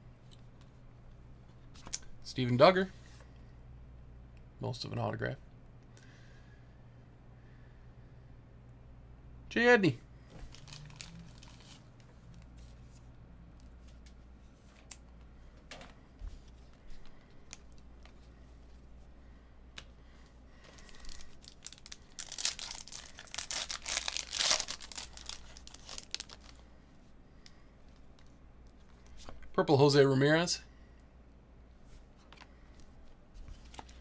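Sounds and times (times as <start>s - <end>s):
foil wrapper tearing and crinkling: 10.5s - 11.8s, 20.8s - 26.6s.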